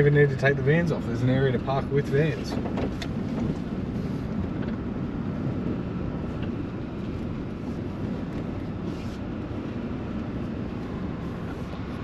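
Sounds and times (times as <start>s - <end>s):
pickup truck driving: 0.0s - 12.0s.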